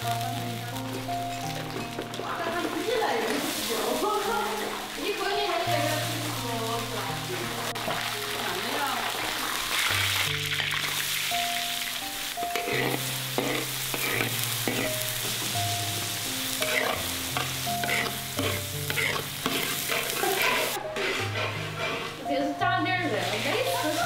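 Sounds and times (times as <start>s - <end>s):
garlic sizzling in hot oil: 0.0s - 24.0s
metal spatula scraping a wok: 12.5s - 15.5s, 16.5s - 24.0s.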